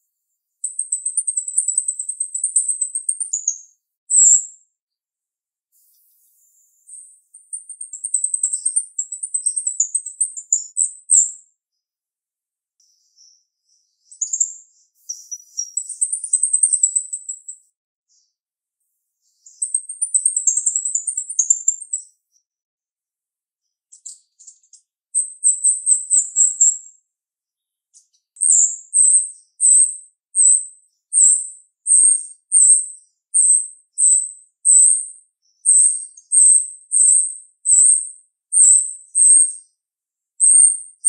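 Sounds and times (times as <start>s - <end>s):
starling singing: 15.1s - 17.6s, 35.7s - 39.5s.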